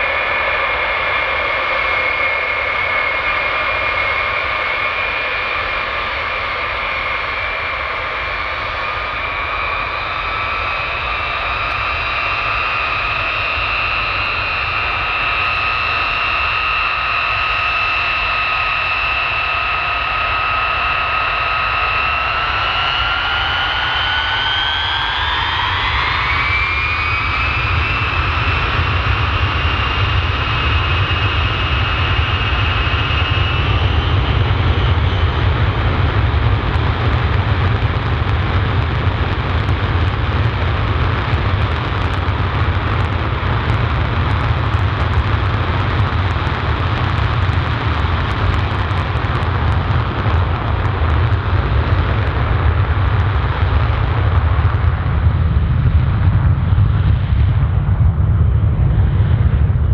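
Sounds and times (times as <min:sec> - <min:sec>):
deep jet engine rumble: 0:00.0 - 0:59.9
jet engine whine: 0:00.0 - 0:59.9.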